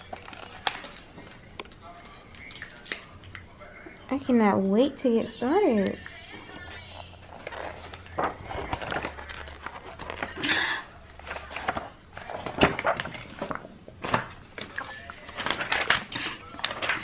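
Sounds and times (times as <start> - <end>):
booklet pages turning: 0.0 - 3.1, 6.0 - 10.5, 11.1 - 17.0
paper sheets shuffling: 6.3 - 10.5, 11.1 - 17.0.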